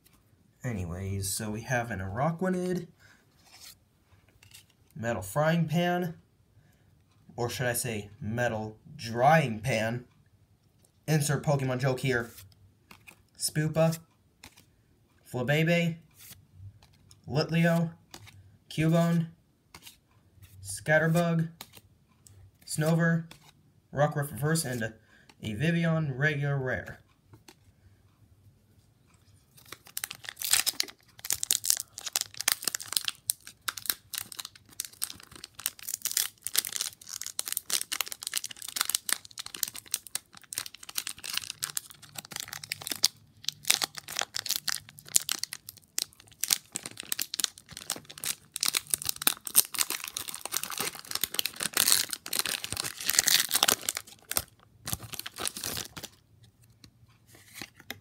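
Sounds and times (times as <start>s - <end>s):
foil wrapper crackling: 29.8s - 56.2s.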